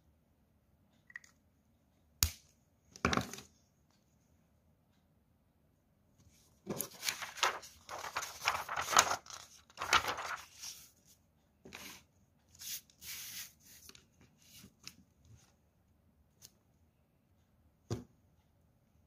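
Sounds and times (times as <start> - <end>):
paper rustling and crinkling: 6.7 - 11.0.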